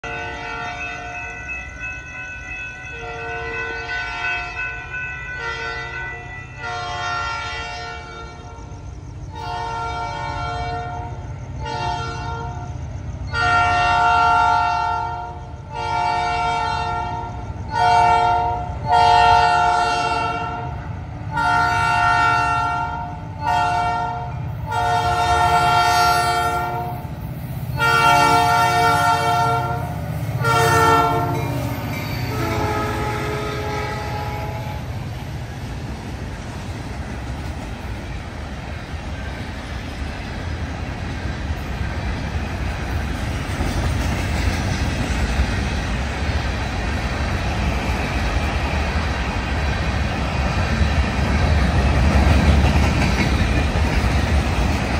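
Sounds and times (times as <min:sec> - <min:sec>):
low rumble of train: 0:00.0 - 0:54.9
locomotive air horn blasts: 0:06.6 - 0:08.6, 0:09.4 - 0:12.7, 0:13.3 - 0:20.7, 0:21.3 - 0:27.0, 0:27.8 - 0:34.8.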